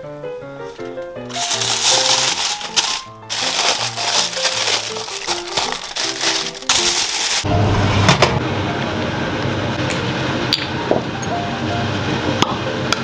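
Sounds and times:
background music melody: 0.0 - 7.5
aluminium foil crinkling: 1.3 - 7.5.

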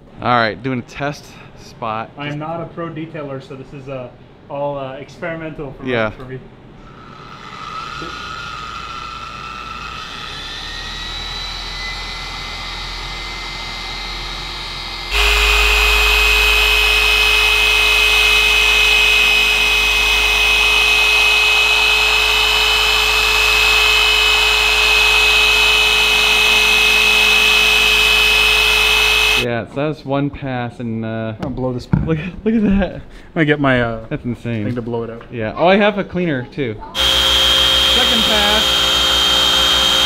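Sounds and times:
orbital polisher whining: 6.9 - 29.5, 37.0 - 40.0.

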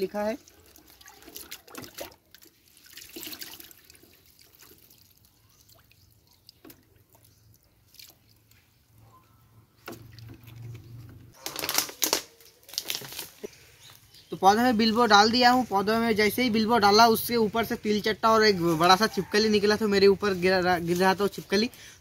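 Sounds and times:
jug splashing in bucket: 0.4 - 8.6, 9.8 - 11.1
liquid pouring into bottle: 0.6 - 7.3.

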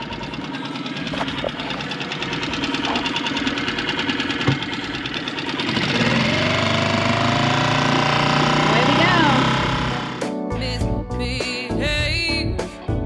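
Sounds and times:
boat engine knocking: 0.0 - 10.2
music: 8.8 - 13.0.

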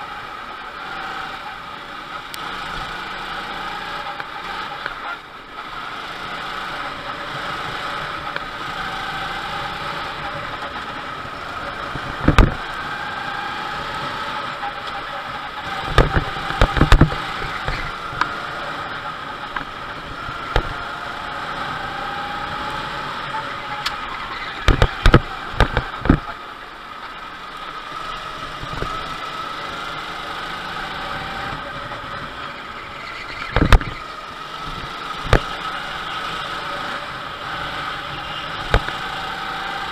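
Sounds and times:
go-kart engine running: 0.0 - 39.9
loud thumps: 12.2 - 12.6, 15.8 - 18.0, 24.6 - 26.3, 33.5 - 34.0.

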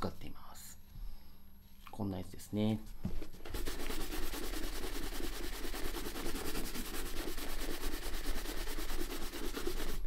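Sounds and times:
brush scrubbing leather boot: 3.4 - 10.0.

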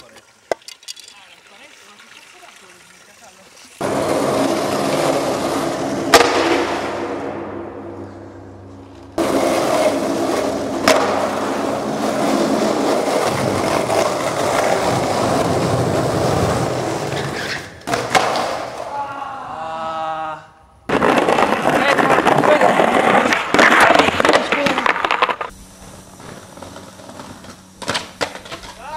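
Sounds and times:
skateboard wheels rolling: 0.0 - 19.0, 20.9 - 28.9
skateboard clack: 3.8 - 7.8, 9.2 - 18.9, 20.9 - 25.5, 26.2 - 28.9.

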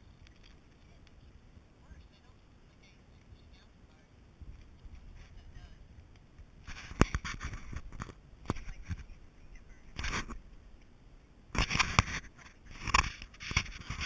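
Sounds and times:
rubbing and knocking on camera: 6.6 - 9.2, 9.9 - 10.4, 11.6 - 14.0.

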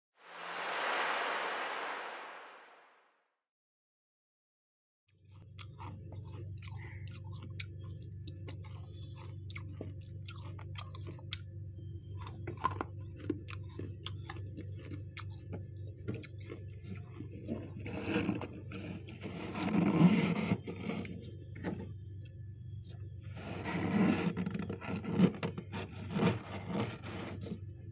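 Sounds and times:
steady low hum: 20.5 - 23.6.

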